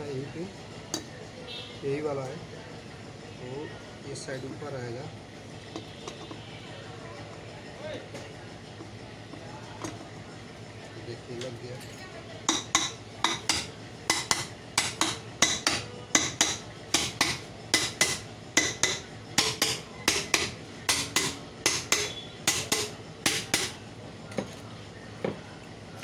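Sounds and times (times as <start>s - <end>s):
hammer tapping metal cover: 12.5s - 23.8s.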